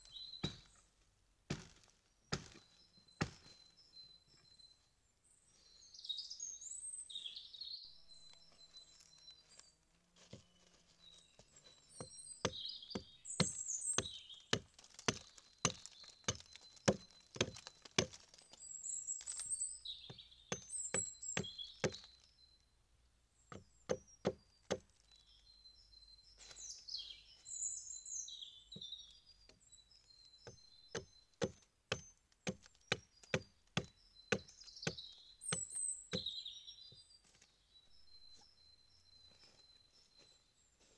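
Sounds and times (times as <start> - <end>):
birds chirping: 0.0 - 0.9, 1.5 - 40.9
hatchet chopping wood: 0.4 - 0.8, 1.5 - 3.5, 12.0 - 18.4, 20.1 - 22.2, 23.5 - 24.9, 30.4 - 36.4.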